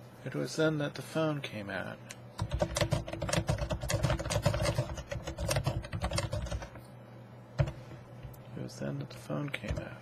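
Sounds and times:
fast keyboard typing: 0:02.4 - 0:06.8, 0:09.6 - 0:10.0.

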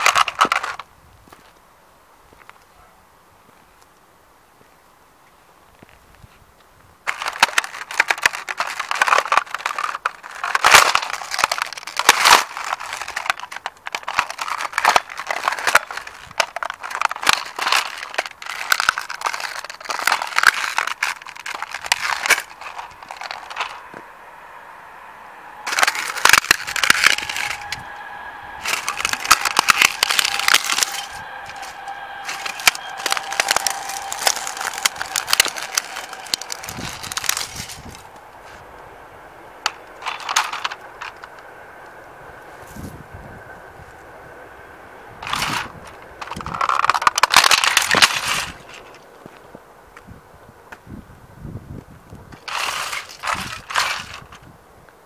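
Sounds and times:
plastic toy cracking under boot: 0:00.0 - 0:00.9, 0:07.1 - 0:23.9, 0:25.7 - 0:27.8, 0:28.6 - 0:38.0, 0:39.6 - 0:41.4, 0:45.2 - 0:49.0, 0:52.3 - 0:54.5
steady high tone: 0:21.4 - 0:46.2.

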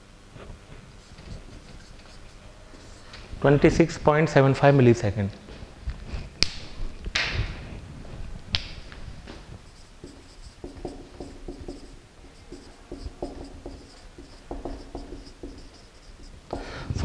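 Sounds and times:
marker squeaking on whiteboard: 0:01.0 - 0:03.2, 0:09.6 - 0:17.0.

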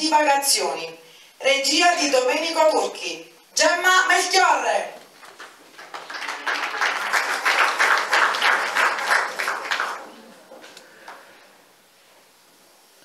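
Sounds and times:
audience applauding: 0:05.2 - 0:11.2.

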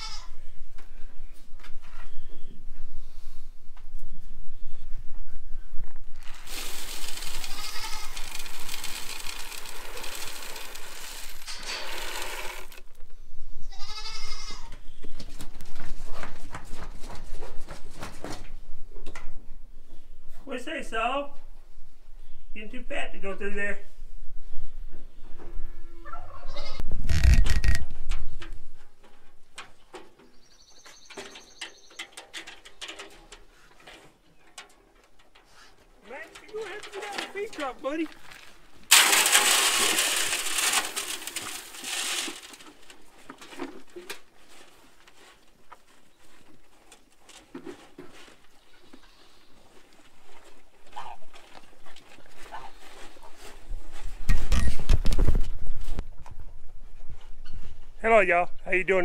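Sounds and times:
goat bleating: 0:00.0 - 0:00.4, 0:07.3 - 0:08.4, 0:13.7 - 0:14.7, 0:25.8 - 0:26.8
feed pouring into wooden box: 0:06.2 - 0:12.9, 0:38.9 - 0:42.8.

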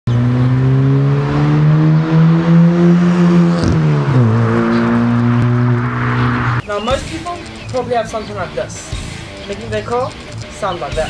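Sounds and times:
car accelerating past: 0:00.1 - 0:06.6.

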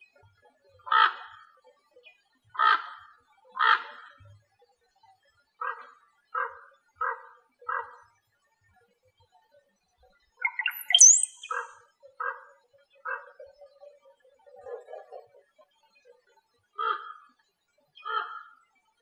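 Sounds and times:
bird chirp sweeping down and up: 0:10.4 - 0:11.6.

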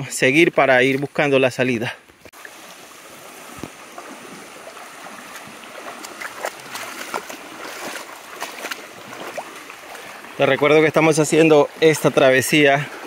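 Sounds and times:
stream water running: 0:00.0 - 0:13.0
brief splashes and knocks: 0:03.4 - 0:04.5, 0:05.2 - 0:10.0.

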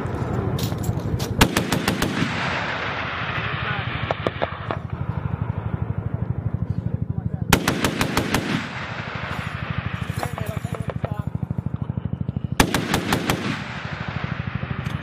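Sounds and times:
helicopter rotor beating: 0:00.0 - 0:15.0
rumble of fire: 0:00.0 - 0:15.0
gunfire burst: 0:01.4 - 0:05.0, 0:07.5 - 0:11.3, 0:12.5 - 0:15.0.

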